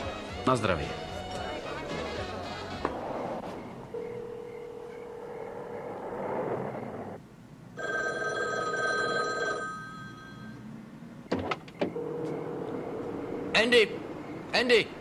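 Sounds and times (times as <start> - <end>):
payphone trilling ring: 7.8 - 10.6.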